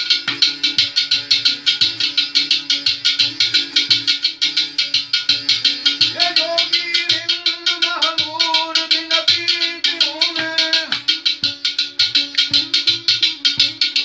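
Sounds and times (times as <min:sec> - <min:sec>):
keyed banjo-zither strummed: 0:00.0 - 0:14.0
man singing: 0:06.1 - 0:11.2.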